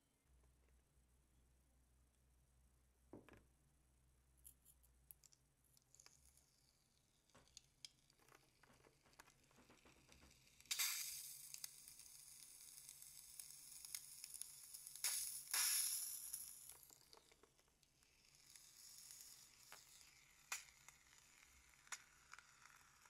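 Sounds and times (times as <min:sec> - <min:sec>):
foam hissing out of balloon: 0:10.7 - 0:11.7, 0:15.0 - 0:16.8.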